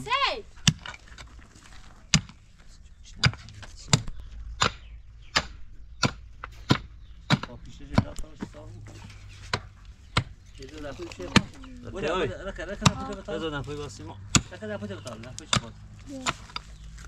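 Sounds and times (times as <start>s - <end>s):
hand tool striking: 3.2s - 11.6s, 12.8s - 16.8s.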